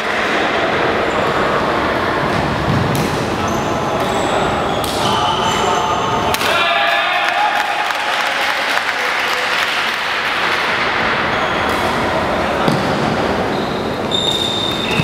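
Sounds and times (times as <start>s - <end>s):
hubbub of voices: 0.0s - 15.0s
shoe squeak on wooden court: 13.5s - 15.0s.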